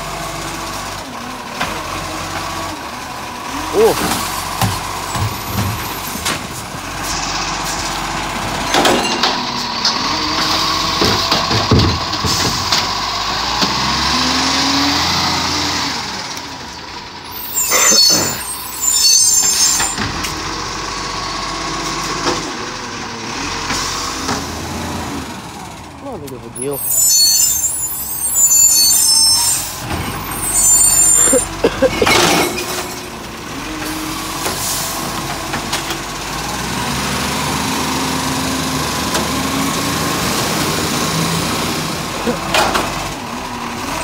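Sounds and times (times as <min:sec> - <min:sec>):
garbage truck engine: 0:00.0 - 0:44.0
hydraulic arm whine: 0:17.3 - 0:20.4, 0:26.6 - 0:33.0.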